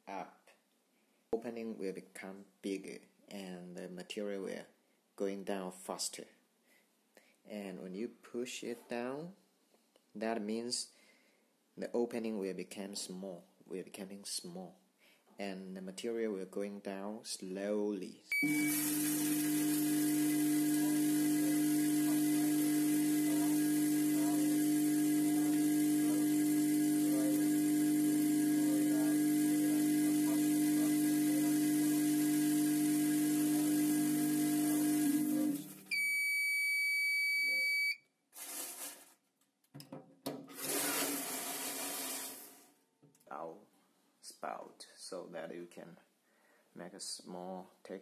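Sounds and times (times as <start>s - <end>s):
short high beep: 18.3s - 19.0s, 35.9s - 38.0s
vibratory feeder buzzing: 18.4s - 35.8s.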